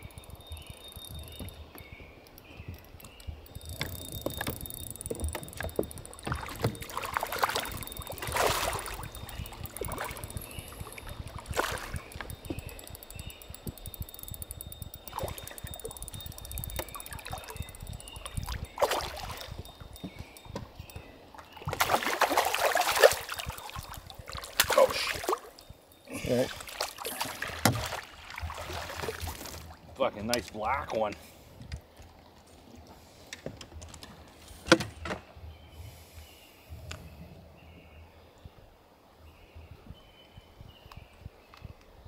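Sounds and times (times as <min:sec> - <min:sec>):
fish splashing at water surface: 0:06.3 - 0:10.3.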